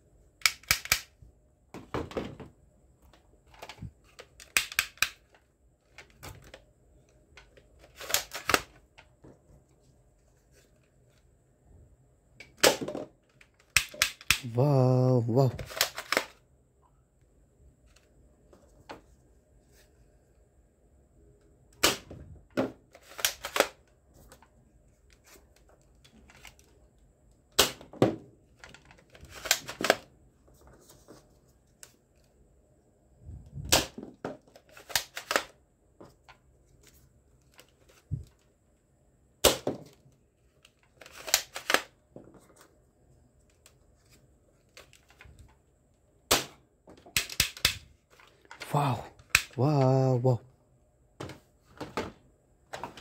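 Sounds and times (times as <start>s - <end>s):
toy blaster plastic clicks: 0.4s - 1.1s.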